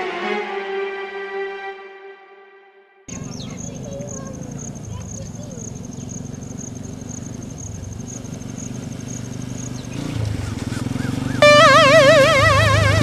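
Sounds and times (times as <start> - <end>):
faint insect chirping: 3.1 - 10.5
motorcycle engine running: 3.1 - 13.0
loud warbling electronic tone: 11.4 - 13.0.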